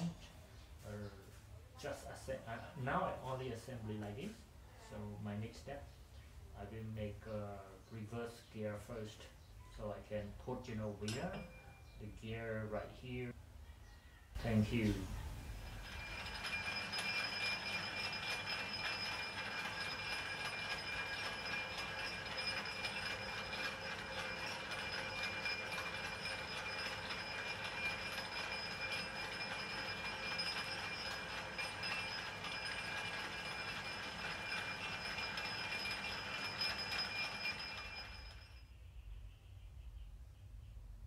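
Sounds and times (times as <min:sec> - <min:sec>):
metal lathe running: 0:15.6 - 0:38.6.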